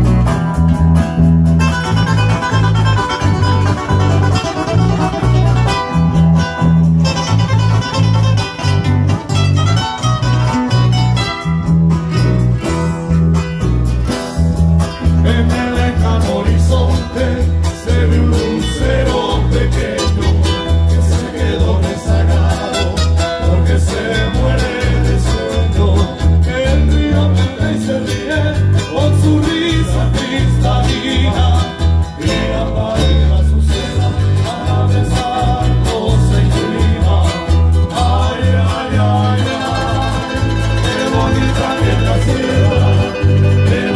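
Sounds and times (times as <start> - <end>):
acoustic guitars strumming: 0.0 - 43.9
bass line: 0.0 - 43.9
man singing: 15.0 - 43.9.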